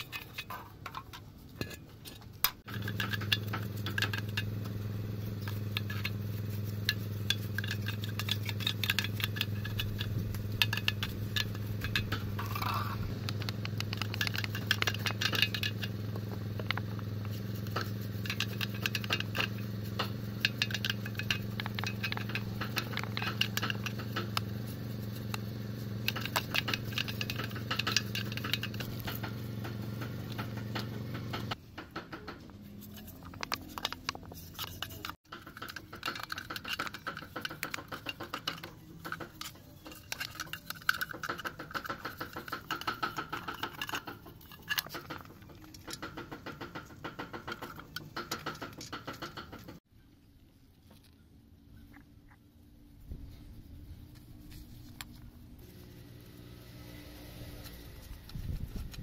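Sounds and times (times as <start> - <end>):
paintbrush scraping metal: 0.0 - 49.8.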